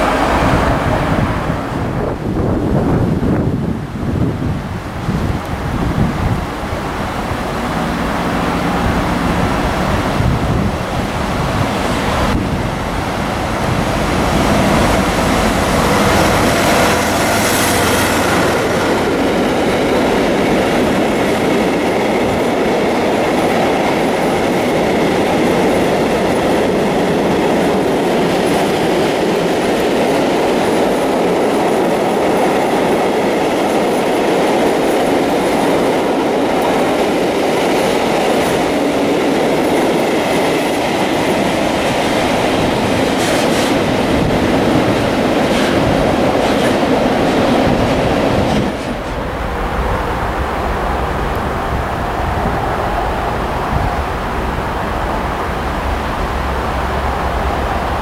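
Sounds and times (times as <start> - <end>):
train wheels rumbling on rails: 0.0 - 58.0
sharp clacks of train wheels: 13.6 - 49.3.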